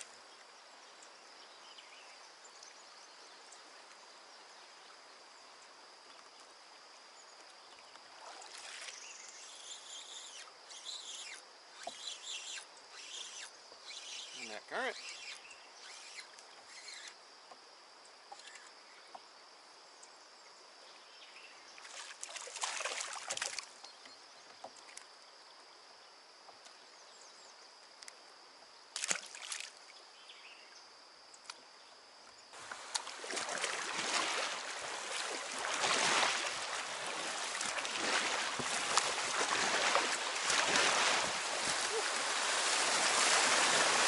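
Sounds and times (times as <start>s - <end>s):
high-pitched insect drone: 8.6s - 17.4s
paddle splashes: 21.8s - 23.7s, 32.6s - 44.0s
rushing river water: 32.6s - 44.0s
water sloshing: 32.6s - 44.0s.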